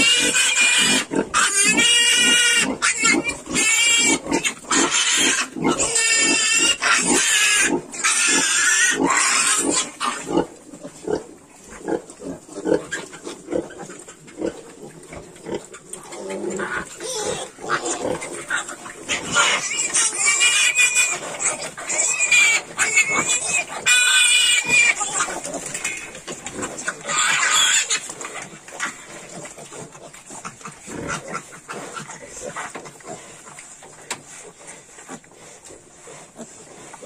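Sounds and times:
piglets squealing: 0:00.0 - 0:10.5, 0:16.2 - 0:26.1, 0:26.9 - 0:28.0
pigs grunting: 0:00.0 - 0:37.0.

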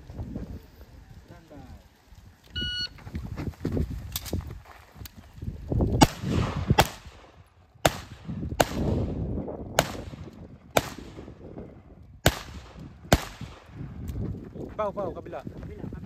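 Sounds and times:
low wind rumble: 0:00.0 - 0:16.0
rifle shots with echo: 0:06.0 - 0:09.2, 0:09.8 - 0:11.3, 0:12.2 - 0:13.8.

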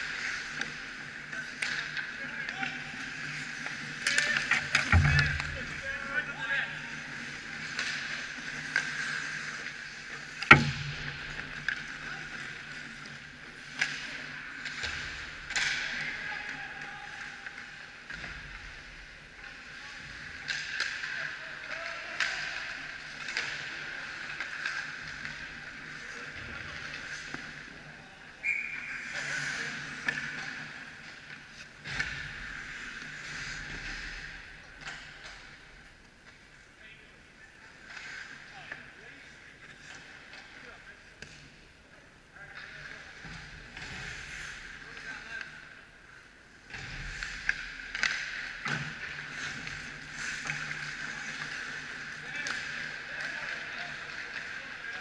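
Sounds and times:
stick and puck clacks: 0:00.0 - 0:06.1, 0:07.1 - 0:16.6, 0:20.3 - 0:27.8, 0:28.7 - 0:36.4, 0:46.7 - 0:55.0
skates scraping ice: 0:00.0 - 0:41.6, 0:42.5 - 0:55.0
referee's whistle: 0:28.4 - 0:29.0.

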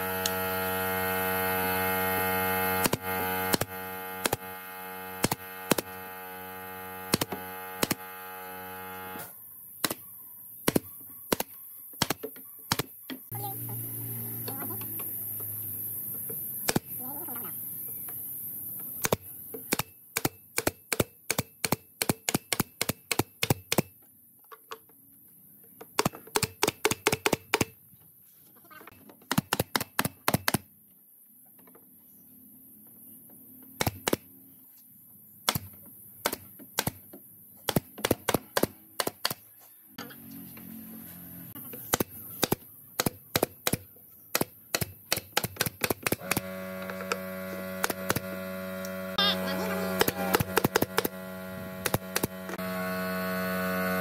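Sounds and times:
pneumatic nailer firing: 0:00.1 - 0:10.0, 0:10.6 - 0:13.0, 0:16.6 - 0:17.0, 0:19.0 - 0:23.9, 0:26.0 - 0:27.8, 0:29.2 - 0:30.7, 0:33.8 - 0:34.3, 0:35.4 - 0:39.5, 0:41.8 - 0:49.0, 0:49.7 - 0:53.0.

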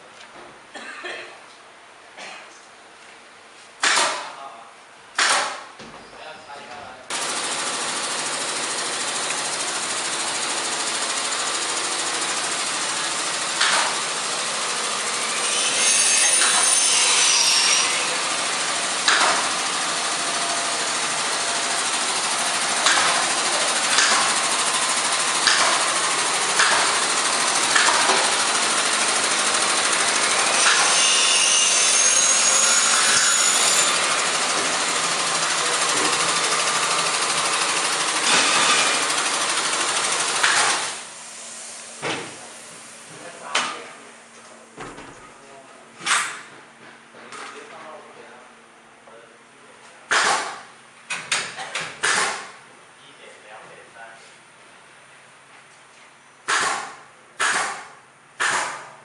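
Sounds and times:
workshop din: 0:07.1 - 0:41.0
sharp knocks: 0:56.5 - 0:58.9.

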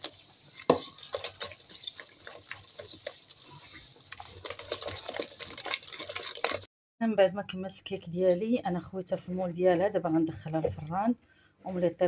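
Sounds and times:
hand squelching through batter: 0:00.0 - 0:06.7.

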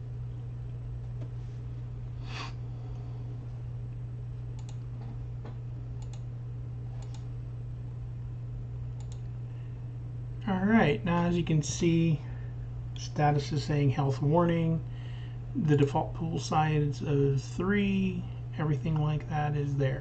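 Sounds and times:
steady low hum: 0:00.0 - 0:20.0
computer mouse buttons clicking: 0:07.0 - 0:07.2, 0:09.0 - 0:09.3.

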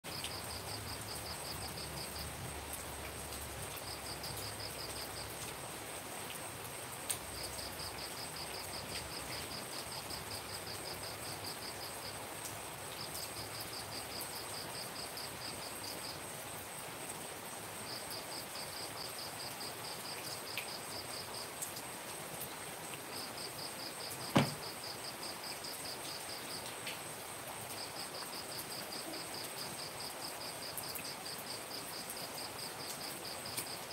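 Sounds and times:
rain hissing: 0:00.0 - 0:33.9
cricket chirping: 0:00.1 - 0:16.8, 0:17.8 - 0:33.9
high insect whine: 0:23.1 - 0:26.7
sharp knock: 0:24.3 - 0:24.6.

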